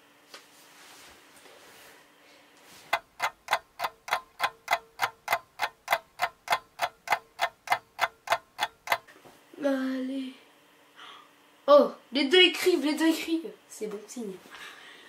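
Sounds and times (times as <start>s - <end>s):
clock ticking: 2.9s - 9.1s.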